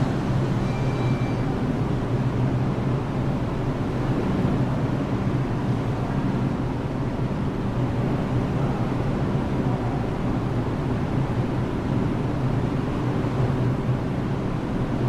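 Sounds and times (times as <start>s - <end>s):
low rumble of subway trains: 0.0s - 15.0s.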